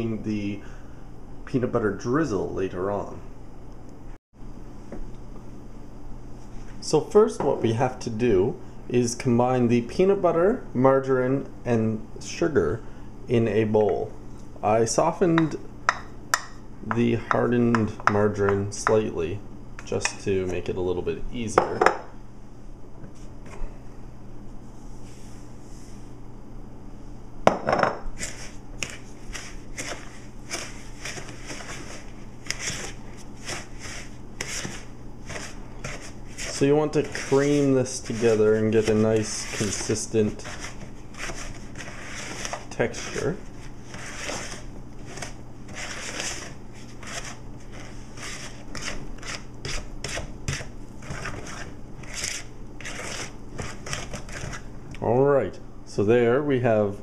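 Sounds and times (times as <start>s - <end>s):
wooden spoon scraping bowl: 28.1s - 54.7s.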